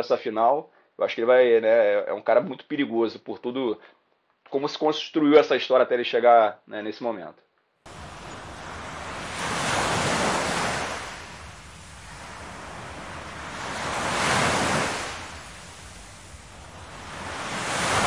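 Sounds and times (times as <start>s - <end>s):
ocean waves washing in: 7.9s - 18.0s.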